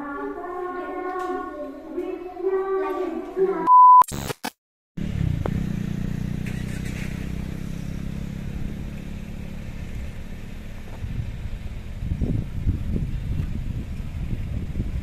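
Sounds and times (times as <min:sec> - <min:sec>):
static glitch noise: 0:03.9 - 0:04.6
car driving rumble from inside: 0:05.0 - 0:15.0.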